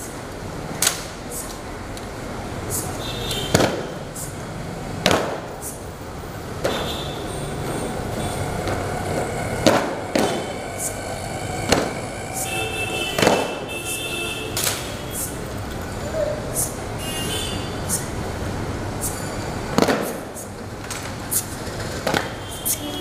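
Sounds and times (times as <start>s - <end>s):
murmuring voices: 7.2s - 13.8s.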